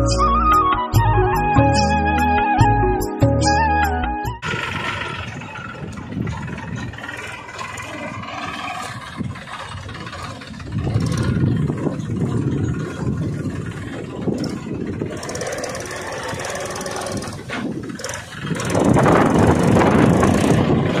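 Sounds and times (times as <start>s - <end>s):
small tractor engine running: 4.4s - 21.0s.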